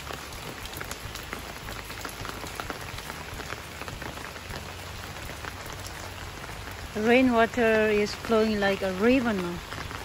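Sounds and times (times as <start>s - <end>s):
rain on wet paving: 0.0s - 10.0s
raindrops splashing: 0.0s - 10.0s.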